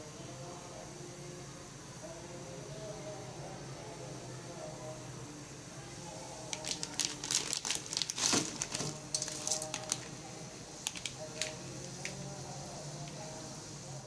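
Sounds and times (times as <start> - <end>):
crackles and clicks: 6.5 - 10.1, 10.8 - 12.2
plastic packet crinkling: 6.5 - 10.2, 10.8 - 12.2.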